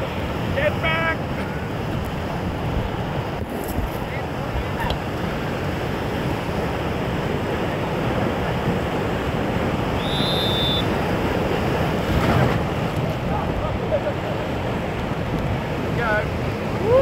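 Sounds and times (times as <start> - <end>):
river water rushing: 0.0 - 17.0
wind buffeting microphone: 0.0 - 17.0
short high whistle-like tone: 10.0 - 10.9.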